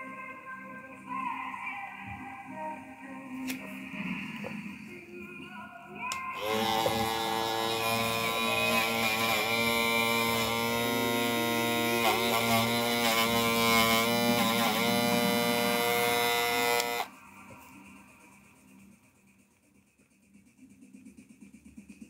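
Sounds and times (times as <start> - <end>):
hair clipper motor running: 6.4 - 17.1.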